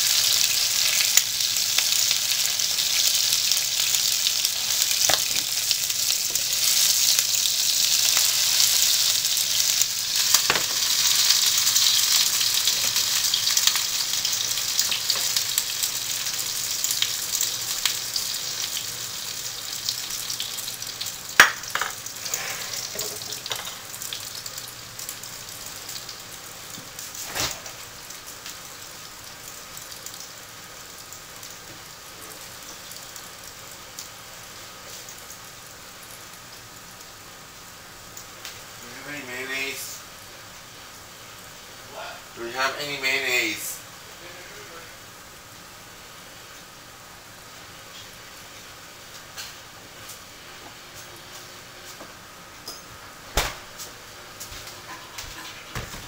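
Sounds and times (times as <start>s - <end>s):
food sizzling in frying pan: 0.0s - 56.0s.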